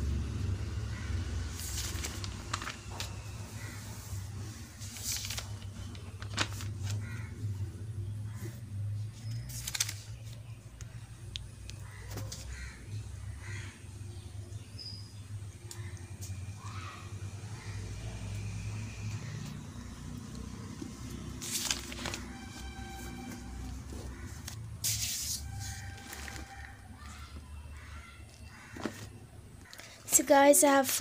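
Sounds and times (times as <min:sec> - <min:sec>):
paper pages rustling: 0:01.6 - 0:07.3, 0:09.1 - 0:10.5, 0:21.2 - 0:30.0
faint animal calls: 0:15.7 - 0:19.9, 0:25.4 - 0:30.0.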